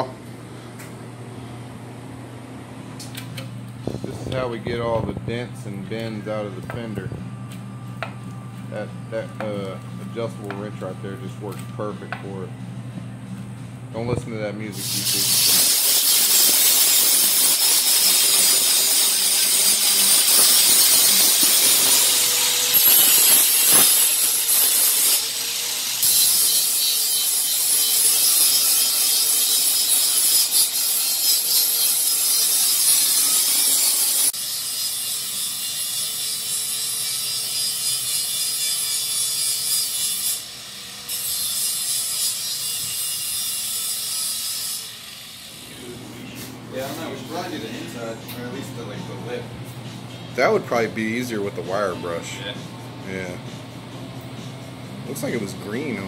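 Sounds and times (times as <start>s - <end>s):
angle grinder grinding metal: 14.7s - 49.4s.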